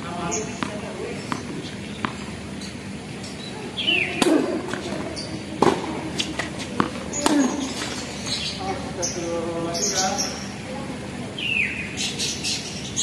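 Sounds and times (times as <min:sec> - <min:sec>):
birds chirping faintly: 0:00.0 - 0:13.0
ball bouncing on hard court: 0:00.3 - 0:02.7, 0:03.9 - 0:08.2
tennis ball hit by rackets: 0:00.5 - 0:02.3, 0:03.8 - 0:08.4.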